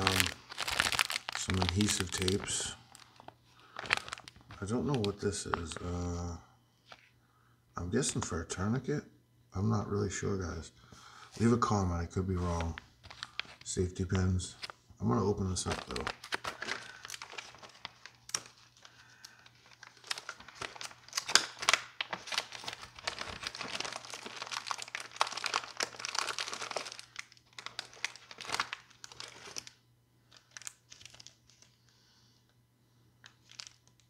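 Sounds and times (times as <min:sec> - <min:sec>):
plastic bag crinkling: 0:00.0 - 0:06.0, 0:12.3 - 0:13.8, 0:14.4 - 0:31.8, 0:33.2 - 0:34.0.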